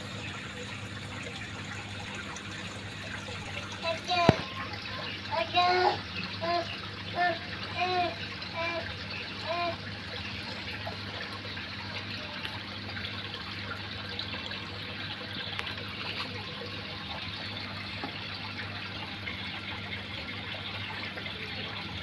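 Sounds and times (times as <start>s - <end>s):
low steady hum: 0.0s - 5.0s
water trickling: 0.0s - 22.0s.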